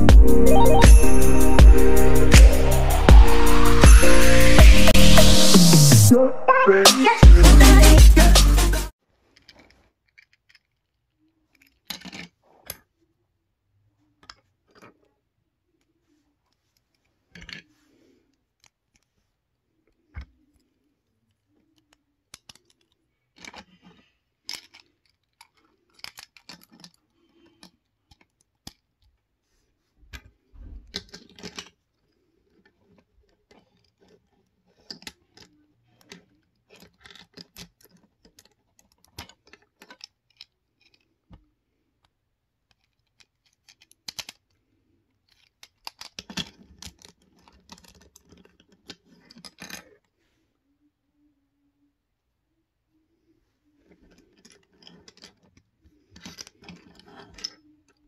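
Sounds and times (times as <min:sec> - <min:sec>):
plastic bricks clicking: 0:09.3 - 0:12.9, 0:19.9 - 0:29.2, 0:30.9 - 0:44.6, 0:45.2 - 0:50.1, 0:53.8 - 0:58.0.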